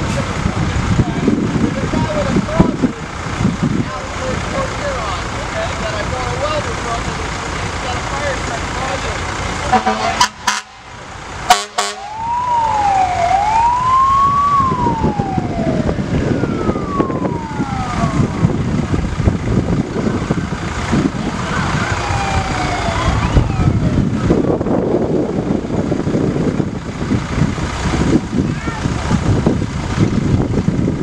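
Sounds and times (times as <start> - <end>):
fire engine sirens wailing: 0.0 - 30.1
truck engines rumbling: 0.0 - 31.0
short sharp siren bursts: 11.5 - 18.3.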